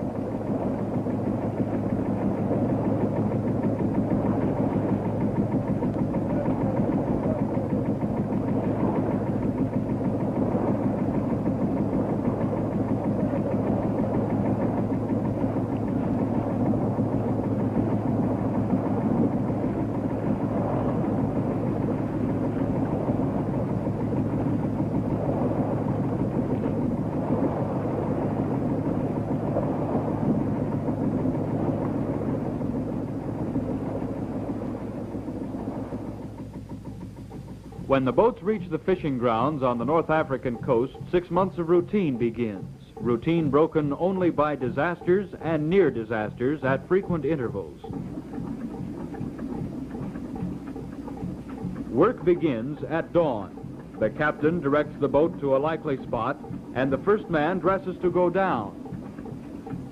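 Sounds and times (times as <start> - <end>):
boat engine droning: 0.0 - 59.9.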